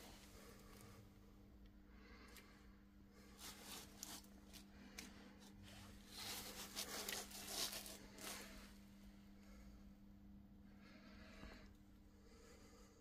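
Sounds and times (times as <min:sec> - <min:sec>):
low electrical hum: 0:00.0 - 0:13.0
faint rustling handling noises: 0:03.1 - 0:09.7.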